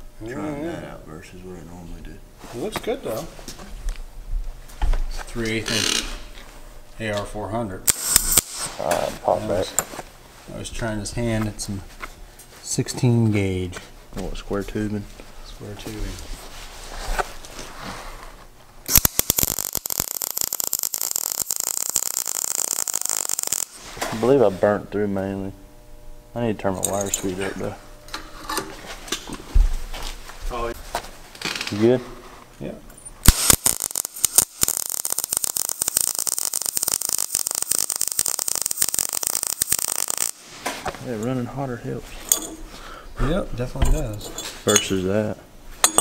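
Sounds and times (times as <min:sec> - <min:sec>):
welding arc crackling: 0:07.8 - 0:09.6, 0:18.8 - 0:24.6, 0:33.2 - 0:41.2.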